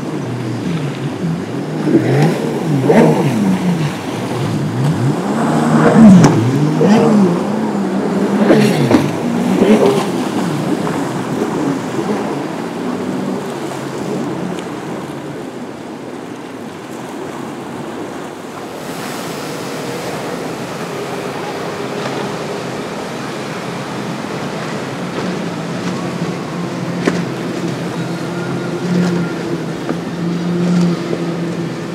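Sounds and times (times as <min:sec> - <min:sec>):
faint boat engines droning: 0:00.0 - 0:31.9
waves breaking: 0:00.0 - 0:31.9.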